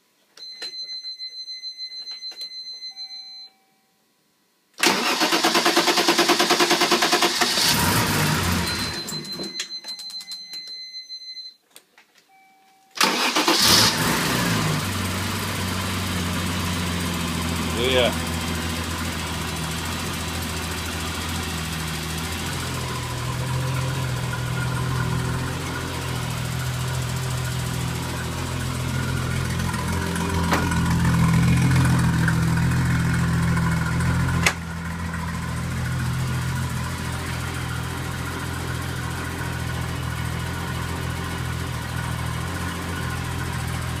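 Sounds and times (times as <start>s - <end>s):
car engine idling: 13.0s - 44.0s.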